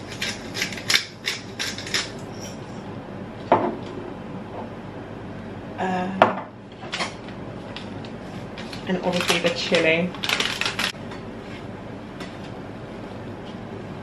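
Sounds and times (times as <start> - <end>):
pepper mill grinding: 0.0 - 2.6, 9.1 - 10.9.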